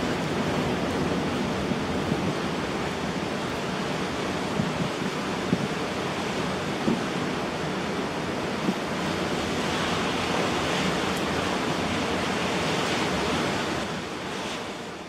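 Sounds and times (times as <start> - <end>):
wind roaring through trees: 0.0 - 15.0.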